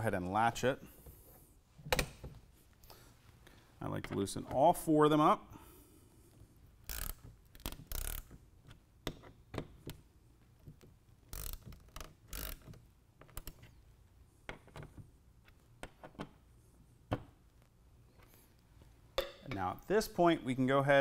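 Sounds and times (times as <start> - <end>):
hand ratchet clicking: 6.8 - 8.3, 11.3 - 13.6.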